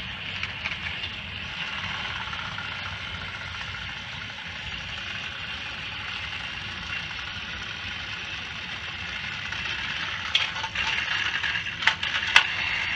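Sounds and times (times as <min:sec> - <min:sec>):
toy train motors whirring: 0:00.0 - 0:12.9
plastic clacks of trains crashing: 0:09.1 - 0:12.9.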